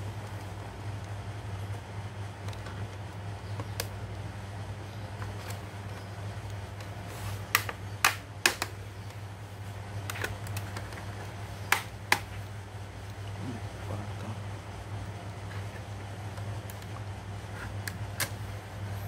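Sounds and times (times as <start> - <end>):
steady low hum: 0.0 - 19.0
plastic laptop case clips clicking: 7.5 - 9.2.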